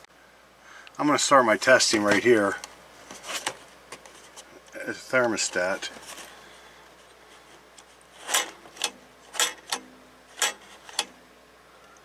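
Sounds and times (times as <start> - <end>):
hard plastic clicks and scrapes: 7.0 - 11.2.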